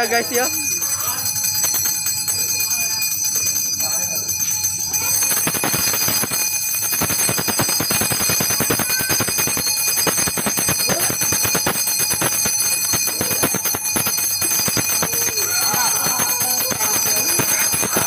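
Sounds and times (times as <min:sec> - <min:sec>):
metal bells ringing rapidly: 0:00.0 - 0:18.0.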